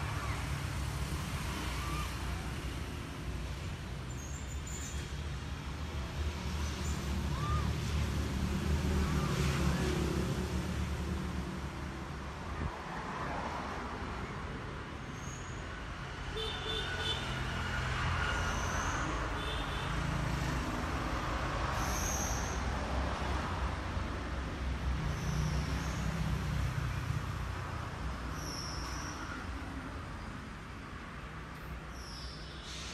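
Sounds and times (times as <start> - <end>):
traffic noise: 0.0 - 32.9.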